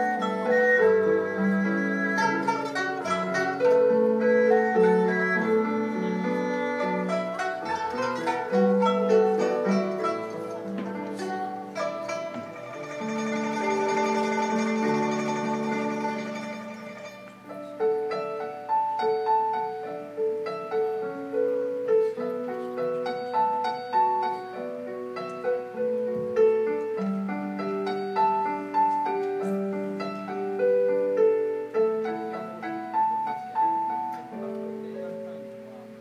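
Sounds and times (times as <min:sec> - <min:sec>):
zither pipa and erhu ensemble: 0:00.0 - 0:36.0.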